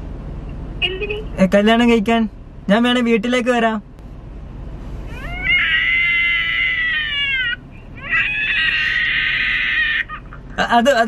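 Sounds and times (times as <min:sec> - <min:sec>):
child screaming and crying: 0:05.1 - 0:10.4.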